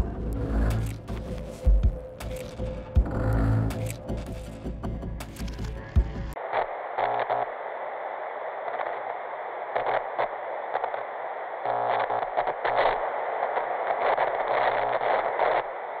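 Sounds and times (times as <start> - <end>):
static hiss: 6.3 - 16.0.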